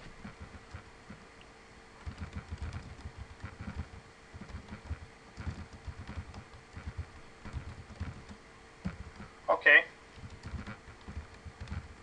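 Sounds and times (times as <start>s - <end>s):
faint steady hum: 0.0s - 12.0s
typing on computer keyboard: 2.0s - 9.3s, 10.2s - 12.0s.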